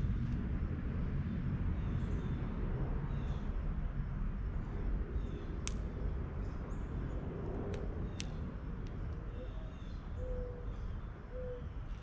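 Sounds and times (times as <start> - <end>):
steady low rumble: 0.0 - 12.0
faint bird chirps: 9.3 - 11.8.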